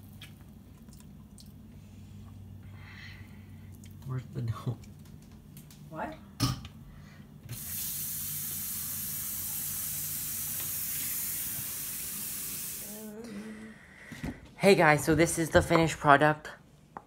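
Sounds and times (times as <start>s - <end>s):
tap water running into sink: 7.5s - 12.8s.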